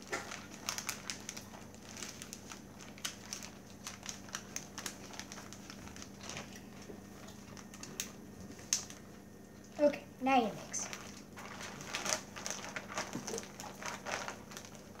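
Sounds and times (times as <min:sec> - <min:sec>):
plastic bag crinkling: 0:00.0 - 0:09.1, 0:10.4 - 0:15.0.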